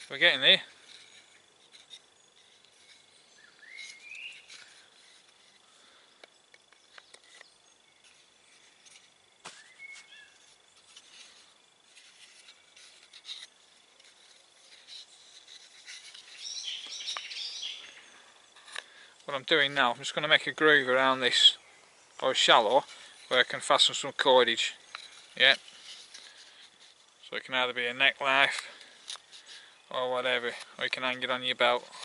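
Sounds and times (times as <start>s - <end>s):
high insect-like hum: 0.0s - 32.0s
bird chirping: 0.4s - 26.6s
short rising bird calls: 3.3s - 4.8s, 9.5s - 10.5s.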